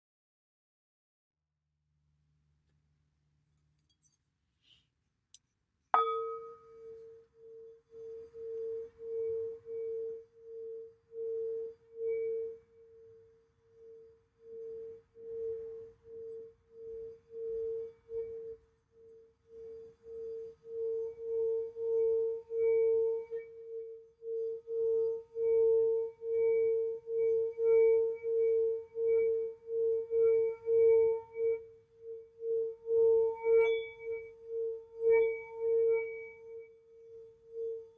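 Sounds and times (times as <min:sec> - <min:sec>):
pulsing steady bowl tone: 0:05.4 - 0:37.9
singing bowl struck: 0:06.0 - 0:07.0.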